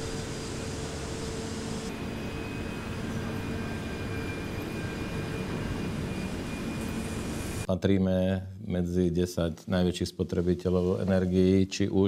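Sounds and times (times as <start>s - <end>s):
high machine whine: 0.0s - 7.7s
industrial machinery roar: 0.0s - 7.7s.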